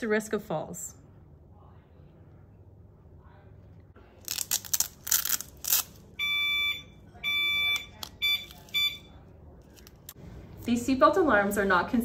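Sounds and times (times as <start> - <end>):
velcro strap ripping open: 4.2 - 6.0
alarm unit beeping: 6.2 - 9.2.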